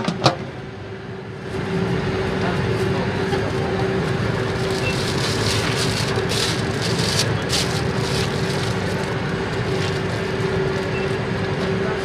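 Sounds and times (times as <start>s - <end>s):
low mechanical hum: 0.0s - 12.0s
plastic bag crinkling: 4.5s - 10.9s.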